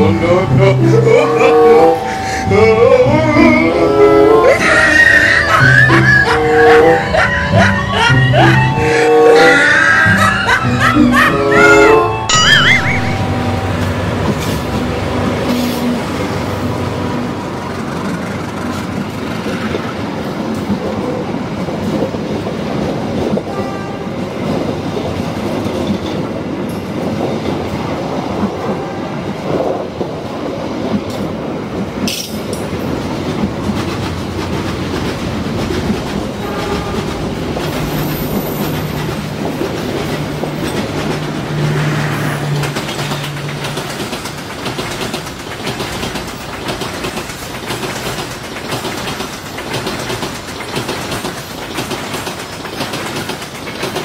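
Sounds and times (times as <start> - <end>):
diesel locomotive passing: 0.0 - 54.0
train wheels clattering on rails: 13.0 - 54.0.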